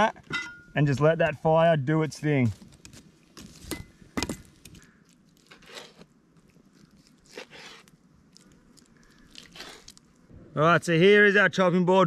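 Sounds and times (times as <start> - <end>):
knife scraping on chopping board: 5.5 - 6.1, 7.3 - 7.9.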